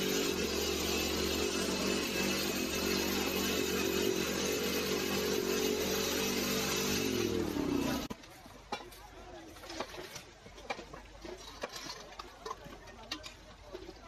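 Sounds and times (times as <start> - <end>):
small engine power tool running: 0.0 - 8.1.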